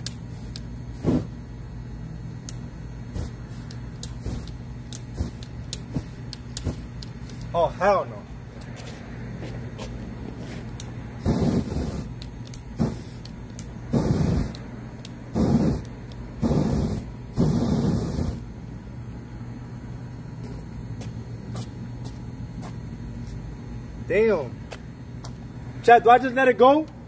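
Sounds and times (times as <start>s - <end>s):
aerosol spray hissing bursts: 0.2s - 1.3s, 11.2s - 12.1s, 12.8s - 13.3s, 13.9s - 14.6s, 15.3s - 18.4s.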